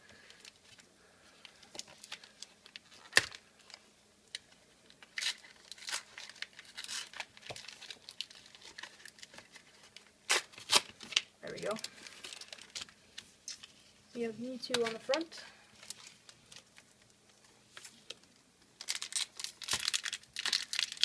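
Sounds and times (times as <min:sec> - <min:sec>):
plastic packaging crinkling: 0:00.1 - 0:13.8, 0:14.5 - 0:21.0
plastic packaging snap: 0:03.0 - 0:03.4, 0:18.8 - 0:21.0.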